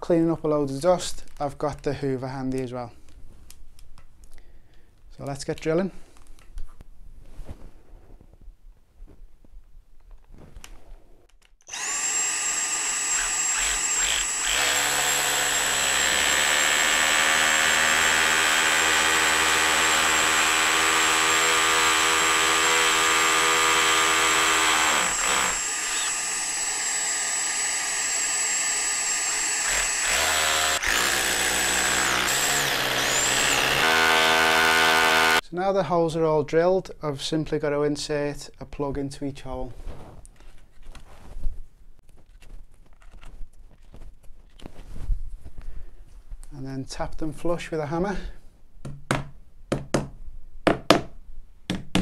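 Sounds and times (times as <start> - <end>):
vacuum cleaner whine: 11.7 - 15.1, 25.0 - 30.9
hammer drill boring into brick: 11.7 - 35.4.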